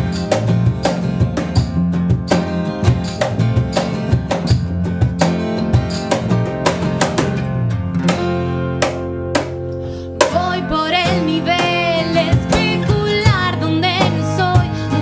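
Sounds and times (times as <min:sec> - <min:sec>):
acoustic guitar strumming chords: 0:00.0 - 0:15.0
woman singing: 0:10.2 - 0:15.0.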